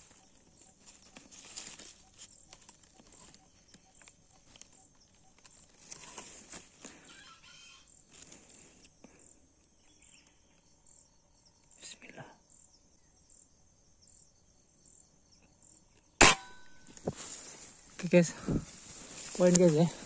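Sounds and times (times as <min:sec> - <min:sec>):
small rustles and clicks: 0:00.0 - 0:07.0, 0:16.9 - 0:20.0.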